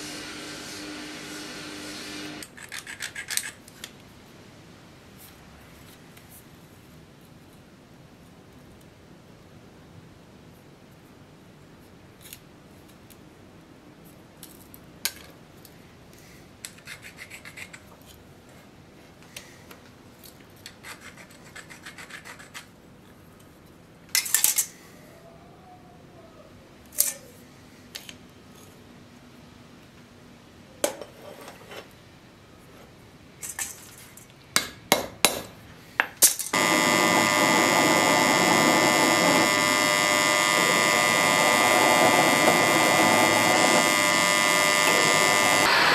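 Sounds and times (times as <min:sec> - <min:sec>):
drill press boring metal: 0:36.6 - 0:45.9.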